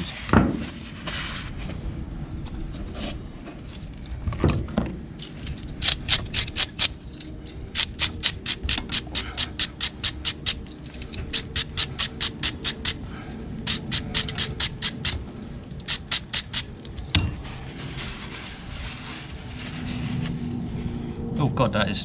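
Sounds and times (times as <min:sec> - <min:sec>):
wire brush scrubbing metal: 0:05.3 - 0:13.0.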